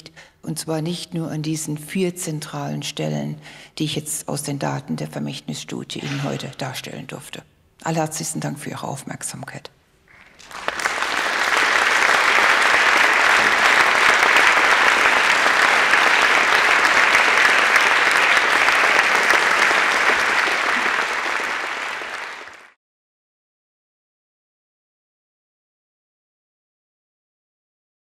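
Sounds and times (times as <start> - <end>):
audience applauding: 10.1 - 22.8.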